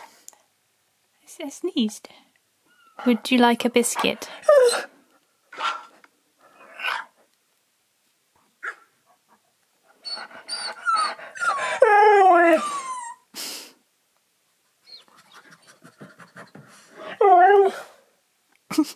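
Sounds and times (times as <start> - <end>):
dog panting: 3.0 - 4.9, 9.0 - 11.8, 14.8 - 17.2
dog whining howl: 4.4 - 4.9, 10.0 - 13.3, 17.1 - 18.0.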